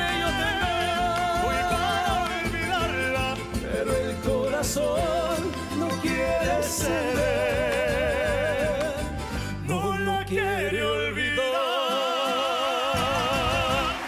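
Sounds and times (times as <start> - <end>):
accordion band: 0.0 - 10.0
men singing with vibrato: 0.0 - 14.0.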